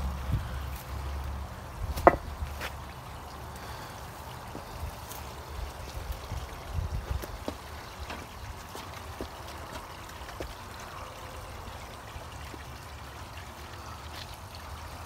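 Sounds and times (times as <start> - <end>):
steady low rumble: 0.0 - 2.6
water trickling: 0.0 - 15.0.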